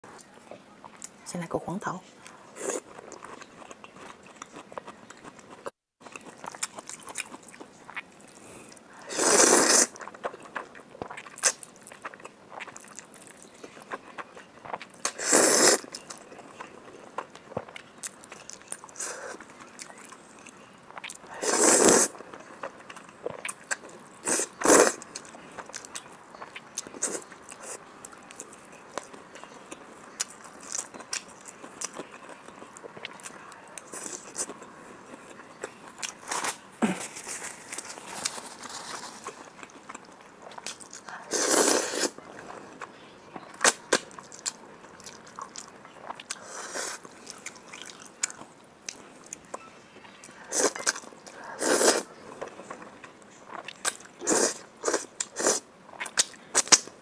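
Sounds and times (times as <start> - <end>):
person chewing food: 2.2 - 56.9
noodle slurps: 9.1 - 9.9.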